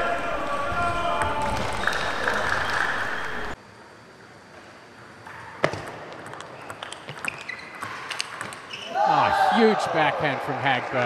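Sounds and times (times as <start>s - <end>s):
ping pong ball hitting paddles: 5.7s - 8.7s.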